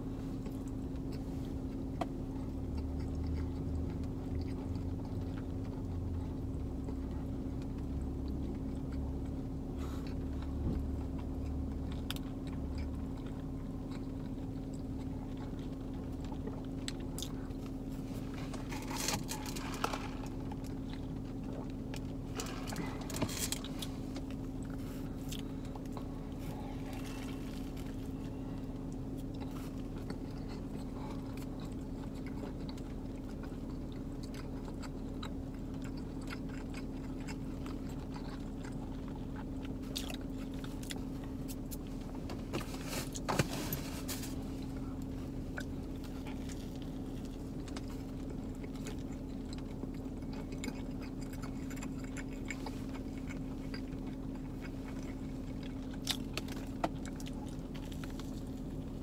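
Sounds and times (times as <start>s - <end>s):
low hum: 0.0s - 59.0s
person chewing and biting: 0.1s - 59.0s
food crackling: 11.1s - 41.8s.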